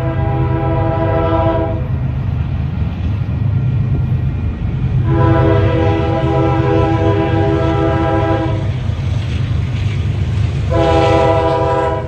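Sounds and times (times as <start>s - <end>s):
locomotive air horn chord: 0.0s - 1.9s, 5.0s - 8.7s, 10.7s - 12.0s
passing train rumble: 0.0s - 12.0s.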